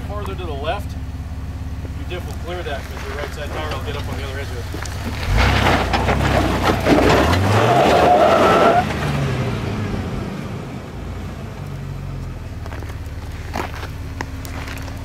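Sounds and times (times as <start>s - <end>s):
off-road vehicle engine revving: 0.0s - 15.0s
rough noise of rocks: 1.9s - 8.2s, 12.5s - 15.0s.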